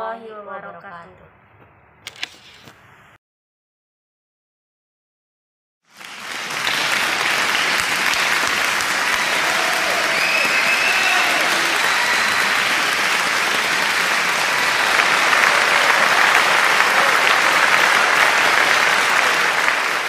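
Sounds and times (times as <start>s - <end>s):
crowd clapping: 5.9s - 20.0s.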